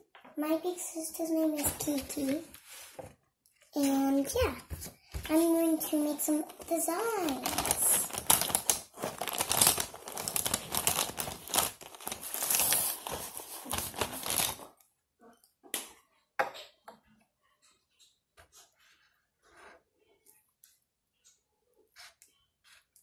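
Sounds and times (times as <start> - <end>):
rustling drawing supplies: 0.0 - 14.8.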